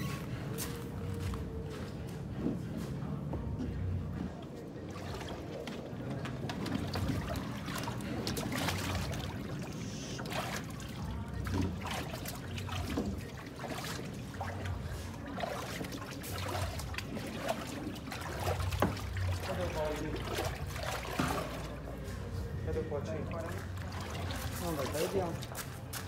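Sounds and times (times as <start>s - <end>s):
water splashing on a dog: 4.8s - 21.9s, 23.2s - 26.0s.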